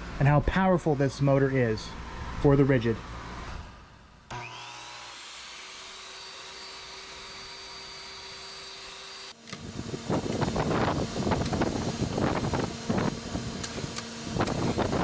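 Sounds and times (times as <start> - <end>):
loud rough saw noise: 4.3 - 15.0
tile saw motor whining: 4.3 - 15.0.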